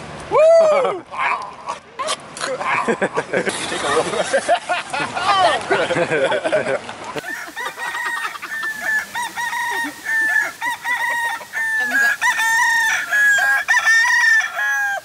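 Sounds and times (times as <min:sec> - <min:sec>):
chickens clucking and cackling: 0:05.9 - 0:15.0.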